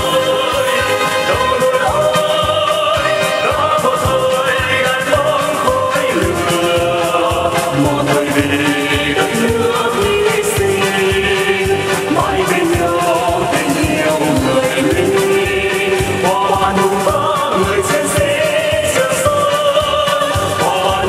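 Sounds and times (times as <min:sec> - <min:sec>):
man and woman singing duet: 0:00.0 - 0:21.0
music with steady beat: 0:00.0 - 0:21.0.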